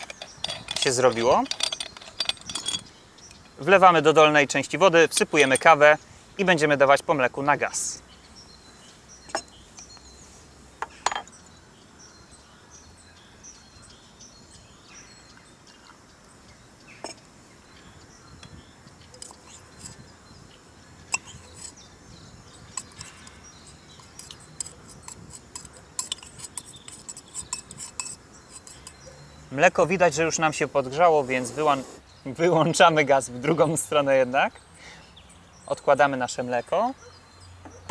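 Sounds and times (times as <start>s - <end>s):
metal clinks and clicks: 0.0s - 3.6s, 5.1s - 5.8s, 22.7s - 29.1s
faint bird chirps: 7.6s - 32.7s.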